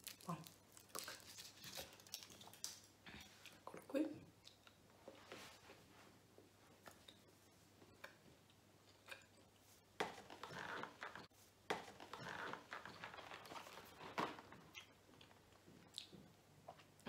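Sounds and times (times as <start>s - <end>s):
cardboard scraping and rustling: 10.0s - 14.6s.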